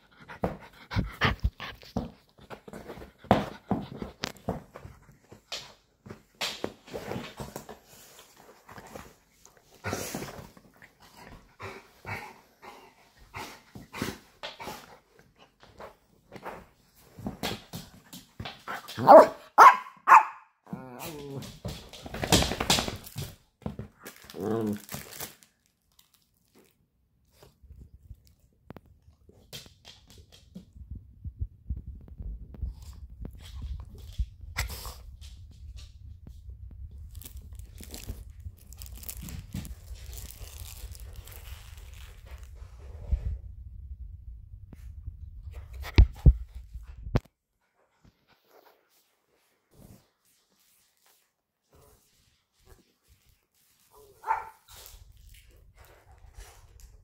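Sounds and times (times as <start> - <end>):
dog pawing crinkly foil: 21.7 - 26.7, 37.1 - 42.6
low thumps and rumble: 30.6 - 38.6.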